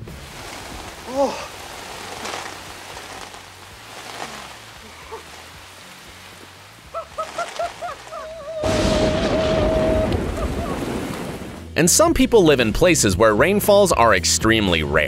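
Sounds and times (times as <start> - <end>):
heavy rain falling: 0.0 - 11.7
man whooping: 7.0 - 11.0.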